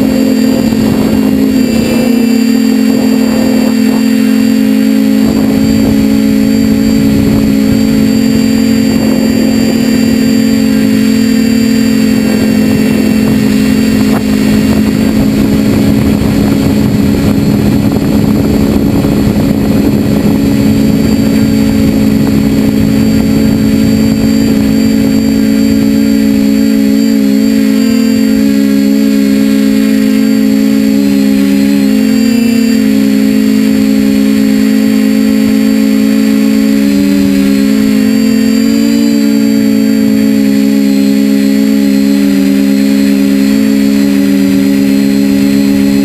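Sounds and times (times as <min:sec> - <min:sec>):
drone motors humming and whining: 0:00.0 - 0:46.0.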